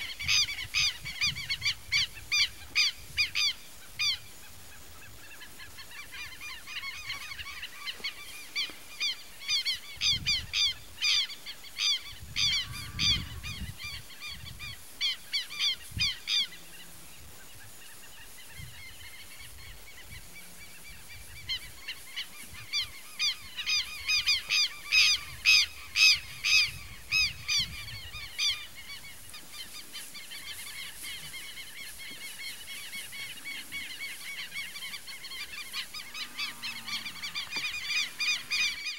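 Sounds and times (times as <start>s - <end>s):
birds honking harshly: 11.9s - 13.8s, 30.3s - 38.9s.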